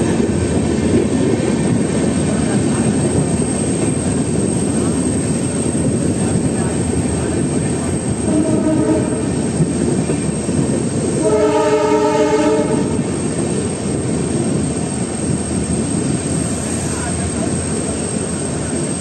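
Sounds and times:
train wheel and wind noise: 0.0 - 19.0
train horn: 8.2 - 9.4, 11.1 - 13.1.

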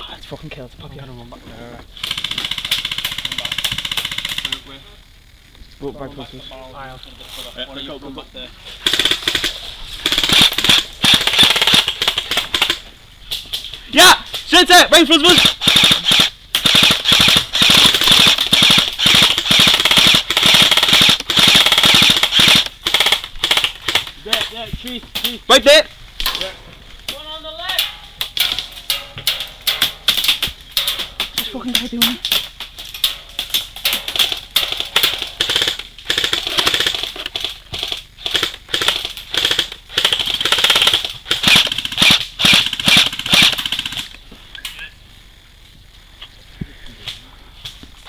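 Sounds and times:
airsoft gun firing full auto: 2.0 - 4.6, 8.8 - 12.8, 15.2 - 24.1, 33.1 - 44.1.

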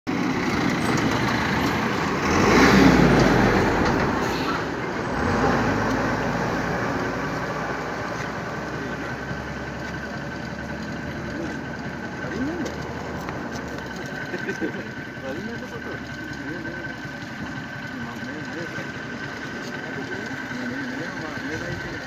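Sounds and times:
motor vehicle rumbling past: 0.1 - 22.0
steady traffic noise: 0.1 - 22.0.

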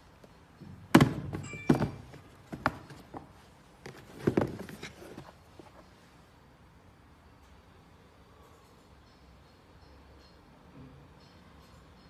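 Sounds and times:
sneaker knocking against boxes: 0.9 - 3.3.

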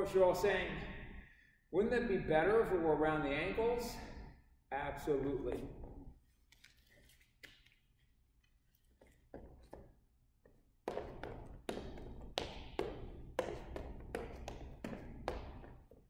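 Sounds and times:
sneaker footsteps on gym floor: 9.0 - 16.0.

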